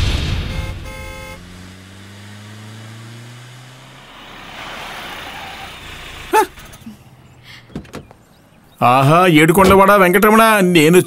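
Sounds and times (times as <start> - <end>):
car rushing past: 0.0 - 8.8
car engine running: 0.0 - 10.0.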